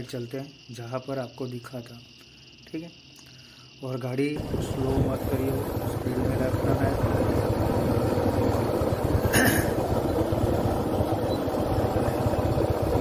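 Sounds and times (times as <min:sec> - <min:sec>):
vehicle engine and road rumble: 0:04.4 - 0:13.0.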